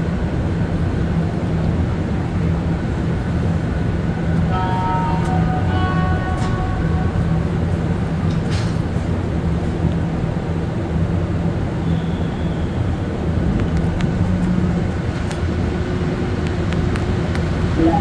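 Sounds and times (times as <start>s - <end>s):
subway train rumbling: 0.0s - 18.0s.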